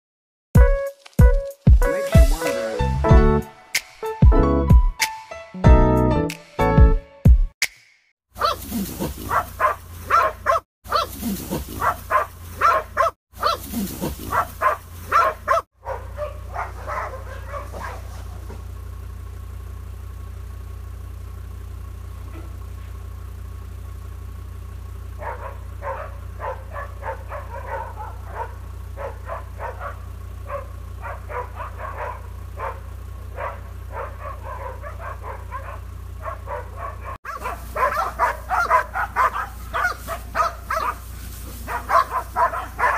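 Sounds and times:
dogs barking: 0:08.4 - 0:18.7, 0:22.2 - 0:23.0, 0:25.1 - 0:42.9
vehicle engine humming: 0:08.4 - 0:42.9.

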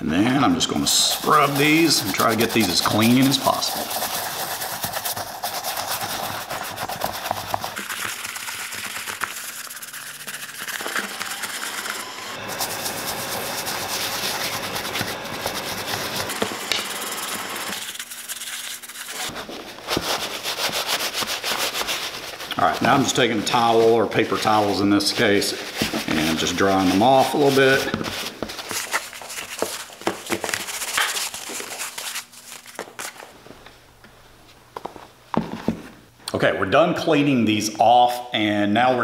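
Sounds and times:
brush scrubbing wet leather: 0:00.6 - 0:29.9
paper towel rubbing leather: 0:00.6 - 0:33.2.

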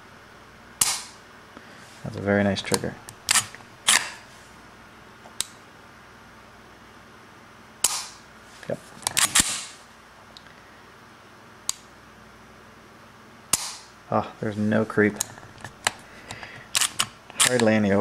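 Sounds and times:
pistol slide and hammer clicks: 0:00.8 - 0:01.2, 0:03.1 - 0:04.2, 0:09.1 - 0:09.7, 0:13.5 - 0:13.9.

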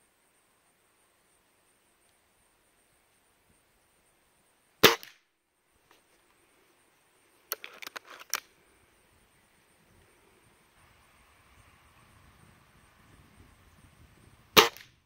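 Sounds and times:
air rifle shot crack: 0:04.8 - 0:05.2, 0:14.6 - 0:15.0
rifle cocking clicks and clacks: 0:07.5 - 0:08.5.

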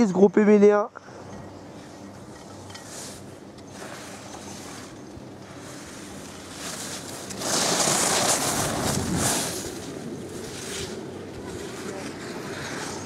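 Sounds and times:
low wind noise: 0:00.0 - 0:13.0
skis scraping on snow: 0:02.8 - 0:13.0.

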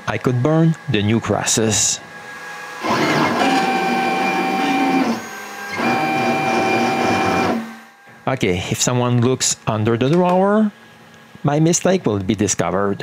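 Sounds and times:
stepper motors whining: 0:01.8 - 0:08.0.

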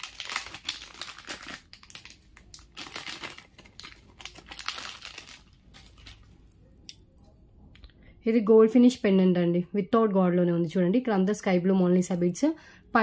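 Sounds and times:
plastic crinkling and rustling: 0:00.0 - 0:06.7.

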